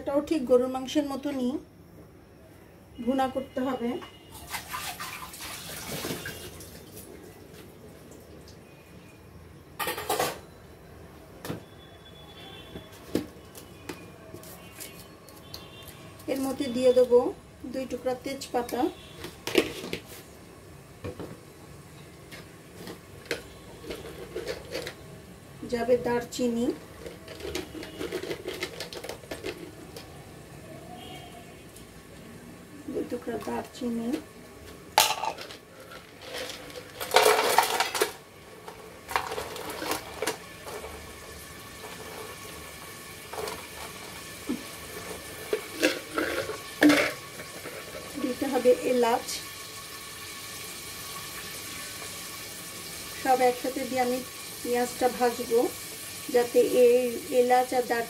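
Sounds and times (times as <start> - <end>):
metal kitchenware clattering: 9.8 - 10.4, 23.9 - 25.0, 35.0 - 38.2, 45.0 - 48.4
hot oil popping and crackling: 39.0 - 57.8.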